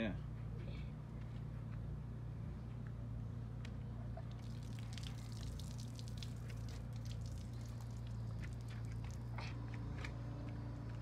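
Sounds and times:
steady low hum: 0.0 - 11.0
water splashing and dripping: 4.2 - 9.4.

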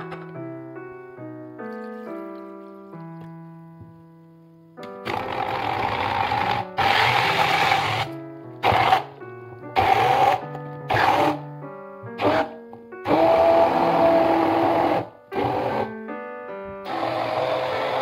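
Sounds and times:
background music with plucked notes: 0.0 - 18.0
immersion blender motor whine: 5.0 - 9.1, 9.8 - 11.4, 13.1 - 15.9, 16.9 - 18.0.

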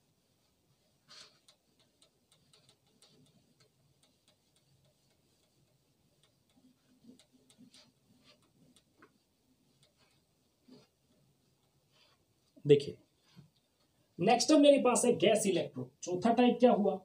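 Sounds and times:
whiteboard wiping clicks: 0.2 - 12.6.

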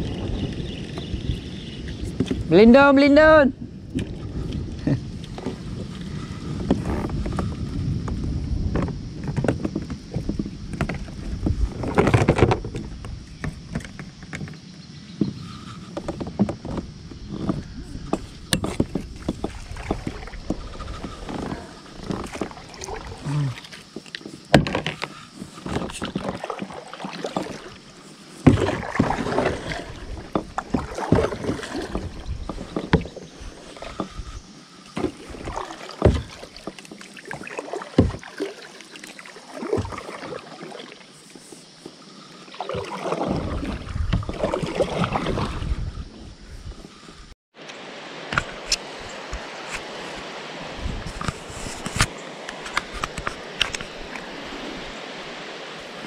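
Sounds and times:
grass rustling against kayak: 0.0 - 56.0
paddle knocking on plastic hull: 8.1 - 14.6, 16.0 - 25.0, 28.4 - 34.3, 35.0 - 38.4, 42.9 - 45.6
water splashing: 15.4 - 46.1, 47.8 - 56.0.

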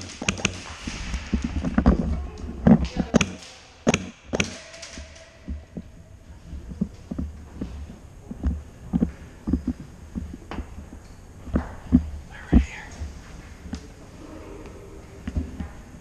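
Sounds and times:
sharp clicks: 0.0 - 0.7, 2.8 - 5.9.

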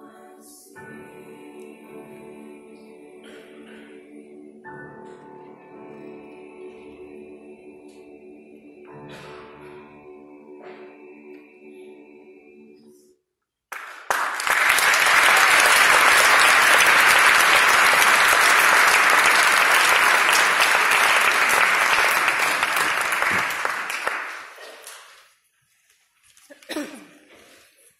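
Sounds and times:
choir holding a chord: 0.0 - 13.2, 15.0 - 24.5
audience applause: 13.7 - 25.2.

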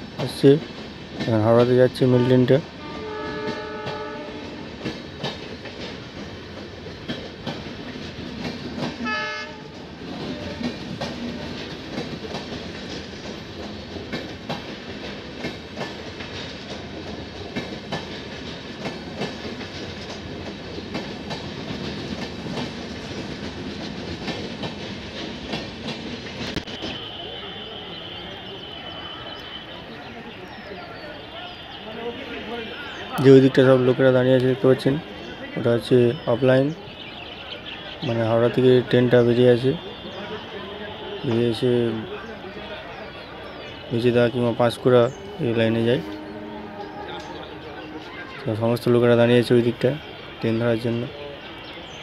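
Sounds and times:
train wheels rumbling: 0.0 - 52.0
train horn: 2.2 - 4.9, 9.0 - 11.6, 26.6 - 29.9, 39.6 - 42.4, 45.1 - 48.4
wheels clicking over rail joints: 3.0 - 27.2.

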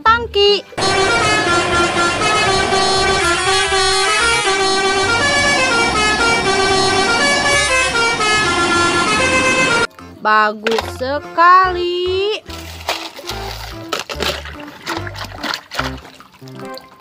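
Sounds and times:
air horn playing a tune: 0.8 - 9.9.

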